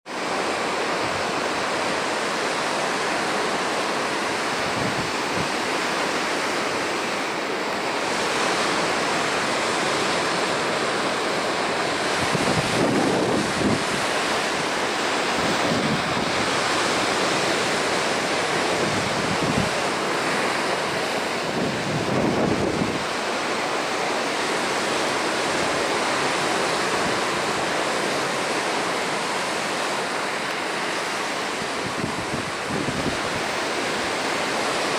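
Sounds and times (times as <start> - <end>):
ocean surf breaking: 0.1 - 34.9.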